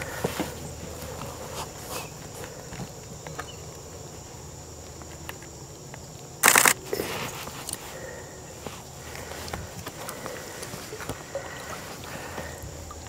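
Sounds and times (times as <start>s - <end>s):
water dripping from paddle: 9.0s - 13.0s.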